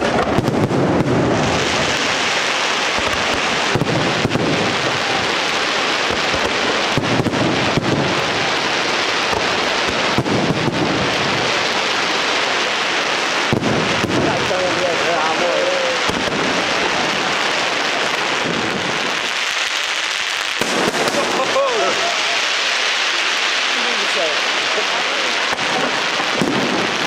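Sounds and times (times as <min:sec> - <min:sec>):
fireworks bangs: 0:00.0 - 0:27.0
fireworks crackling: 0:00.0 - 0:27.0.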